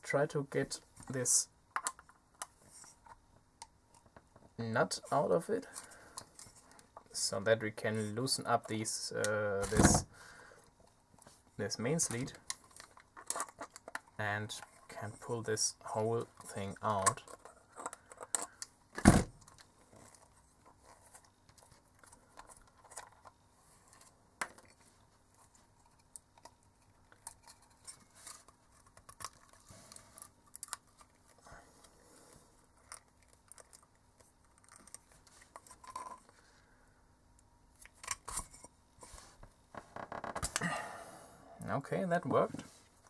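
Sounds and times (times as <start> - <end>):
small parts clicking and rustling: 11.9 - 31.9, 32.6 - 36.4.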